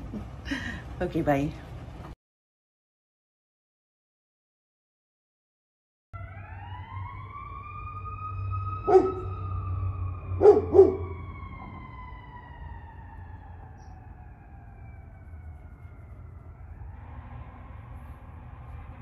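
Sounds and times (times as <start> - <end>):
siren wailing: 6.2 - 19.0
dog barking: 8.9 - 9.3, 10.4 - 11.1.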